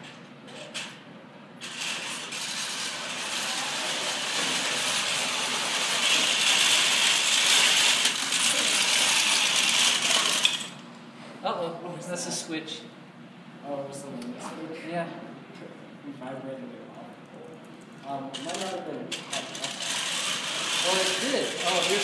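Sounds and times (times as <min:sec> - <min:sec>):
electric motors whirring: 0:01.6 - 0:10.8, 0:18.4 - 0:22.0
metal parts rattling: 0:01.6 - 0:10.8, 0:18.3 - 0:22.0.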